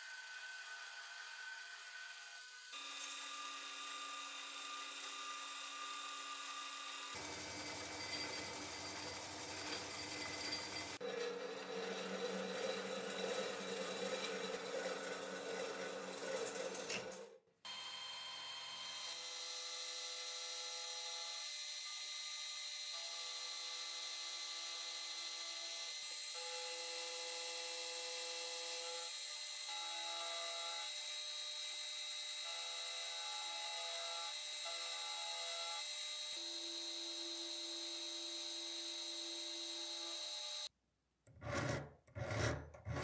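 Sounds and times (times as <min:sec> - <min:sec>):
milling machine cutting brass: 0:02.8 - 0:19.2
rough uneven cutting noise: 0:07.1 - 0:17.3.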